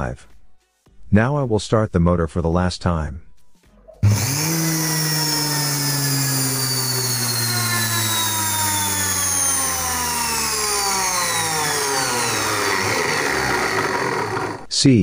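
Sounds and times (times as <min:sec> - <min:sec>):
electric motor whine: 0:04.0 - 0:14.7
motor brushes hissing rush: 0:04.0 - 0:14.7.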